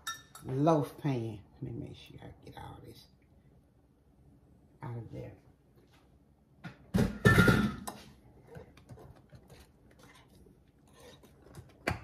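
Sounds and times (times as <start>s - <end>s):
glassware clatter: 0.0s - 0.5s
whisk scraping glass bowl: 9.4s - 11.6s.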